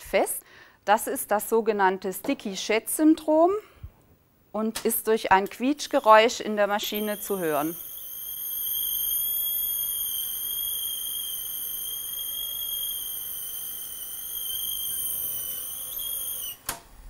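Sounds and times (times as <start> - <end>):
videotape recorder squealing: 5.6 - 16.6.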